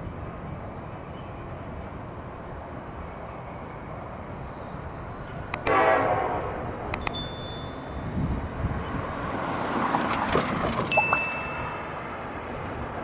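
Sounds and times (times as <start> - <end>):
train air horn blast: 5.6 - 6.9
sharp clicks with high ring: 6.9 - 8.0.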